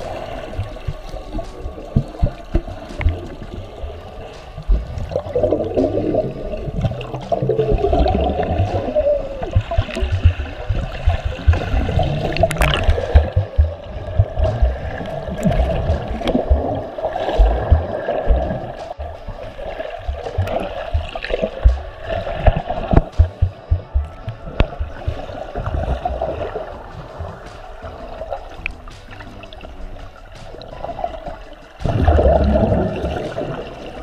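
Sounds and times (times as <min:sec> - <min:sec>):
underwater churning and bubbling: 0:00.0 - 0:34.0
dull low thumps of arm strokes: 0:07.7 - 0:28.2.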